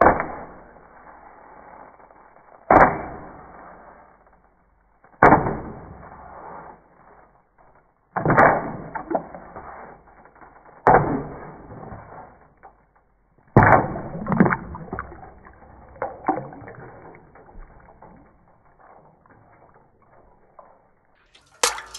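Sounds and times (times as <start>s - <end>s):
water splashing: 13.6s - 21.9s
wooden spoon striking ice: 21.4s - 21.9s.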